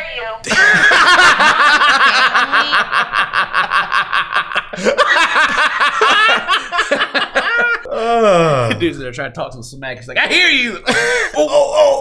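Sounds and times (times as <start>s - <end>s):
men laughing hard: 0.5s - 8.8s, 10.8s - 12.0s.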